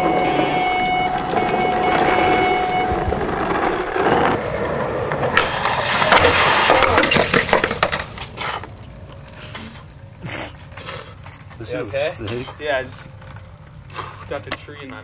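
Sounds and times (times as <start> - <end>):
skateboarder crashing into brush: 3.4 - 8.4.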